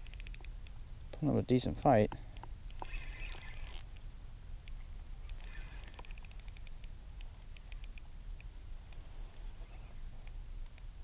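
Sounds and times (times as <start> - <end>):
fishing reel clicking: 0.0 - 0.8, 1.8 - 7.0, 7.6 - 8.5
low steady rumble: 0.0 - 11.0.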